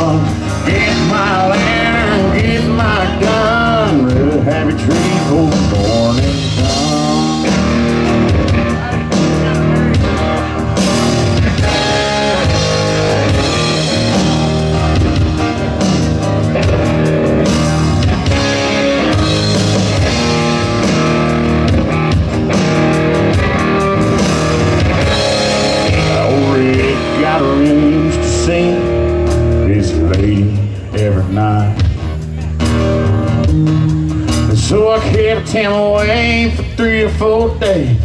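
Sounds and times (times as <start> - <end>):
bending guitar notes: 0.0 - 36.8
drum kit steady beat: 0.0 - 38.0
guitars playing: 0.0 - 38.0.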